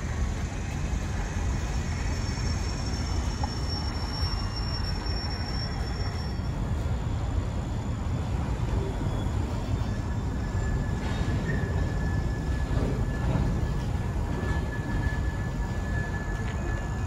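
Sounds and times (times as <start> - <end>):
freight train rumbling over bridge: 0.0 - 17.0
thin high whine: 0.0 - 17.0.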